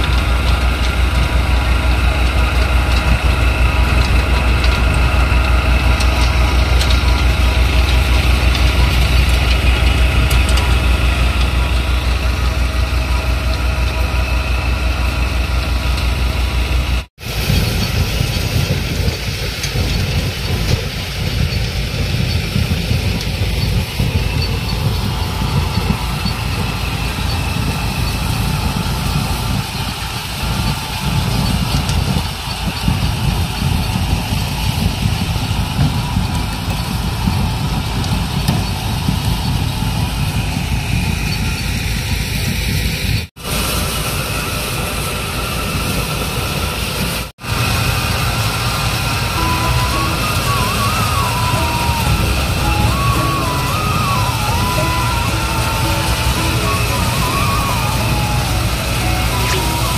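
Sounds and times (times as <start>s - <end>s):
threshing machine rumbling: 0.0s - 59.9s.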